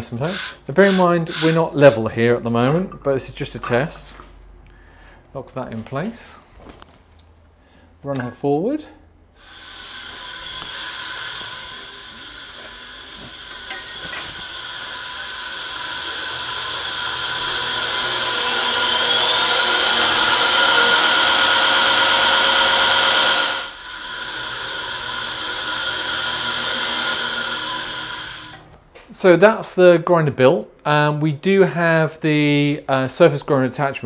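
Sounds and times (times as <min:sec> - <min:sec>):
abrasive belt hissing: 0:00.0 - 0:02.0, 0:09.4 - 0:28.7
motor whine: 0:09.4 - 0:28.7.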